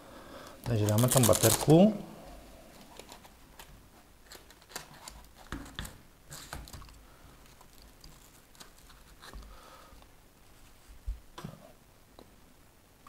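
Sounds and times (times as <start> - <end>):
hands handling plastic parts: 0.6 - 1.9, 2.7 - 9.5.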